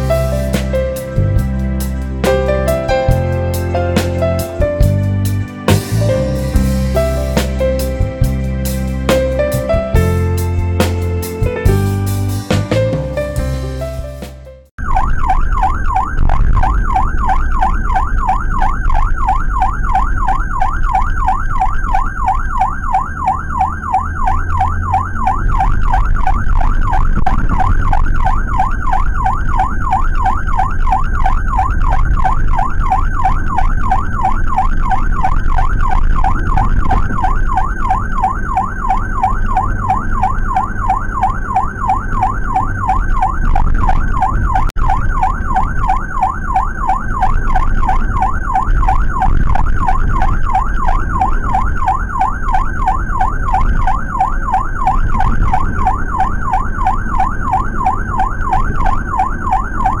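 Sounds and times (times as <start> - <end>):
engine and road rumble: 0.0 - 60.0
emergency siren yelping: 14.8 - 60.0.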